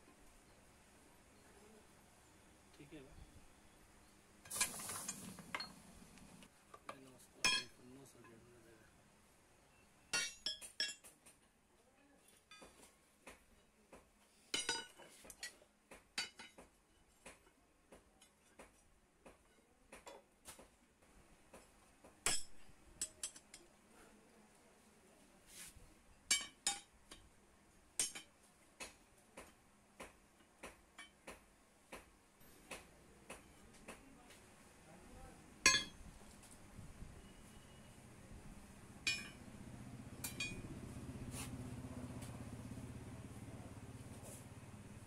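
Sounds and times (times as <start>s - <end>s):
metal rods clinking on anvil: 7.4s - 7.8s, 10.1s - 11.1s, 14.5s - 15.6s, 22.2s - 23.7s, 26.3s - 27.2s, 28.0s - 28.3s, 35.7s - 36.0s, 39.0s - 39.4s, 40.2s - 40.7s.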